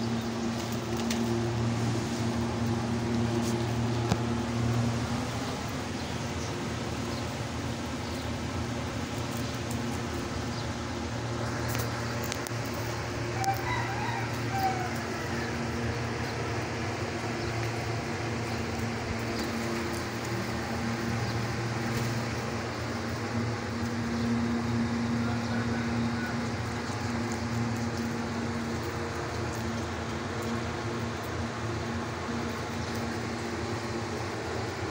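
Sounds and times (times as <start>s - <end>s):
steady low hum: 0.0s - 34.9s
rooster crowing: 13.3s - 15.8s, 25.2s - 26.5s.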